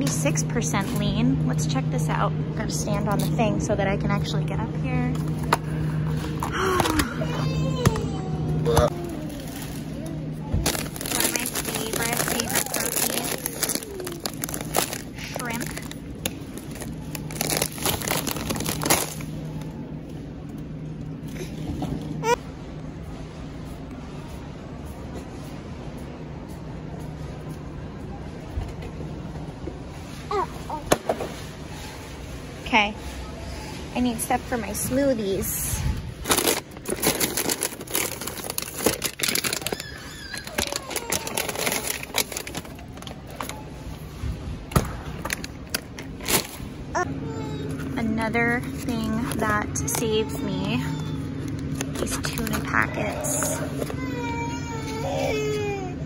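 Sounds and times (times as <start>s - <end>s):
steady low hum: 0.0s - 39.5s, 41.8s - 56.0s
plastic bags crinkling: 8.9s - 19.8s, 36.1s - 43.6s, 48.6s - 53.8s.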